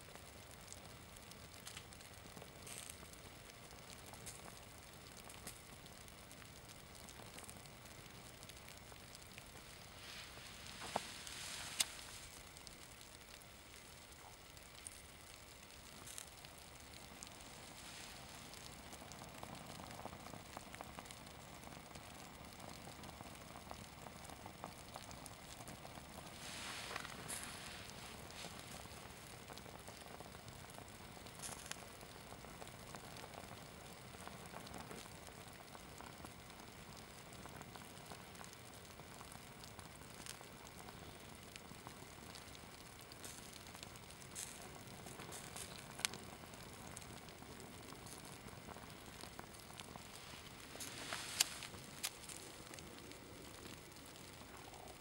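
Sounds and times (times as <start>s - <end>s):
burning fabric crackling: 0.0s - 55.0s
lighter hiss: 0.7s - 21.2s, 22.8s - 33.6s, 39.2s - 55.0s
small pops of melting fabric: 1.4s - 21.1s, 24.6s - 33.4s, 40.0s - 52.8s.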